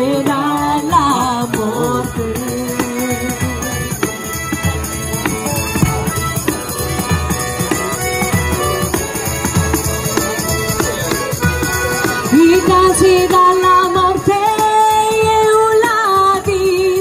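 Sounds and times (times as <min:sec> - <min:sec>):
violin: 0:00.0 - 0:17.0
button accordion: 0:01.5 - 0:14.2
frame drum with jingles: 0:04.5 - 0:08.3.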